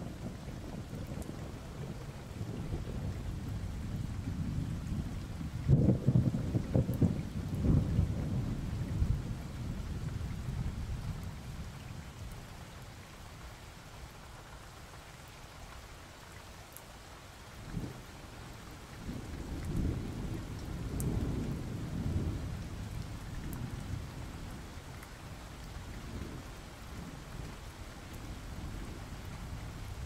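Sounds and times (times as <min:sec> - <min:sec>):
rolling thunder: 0:00.0 - 0:11.2, 0:19.0 - 0:24.6
steady rain: 0:00.0 - 0:30.0.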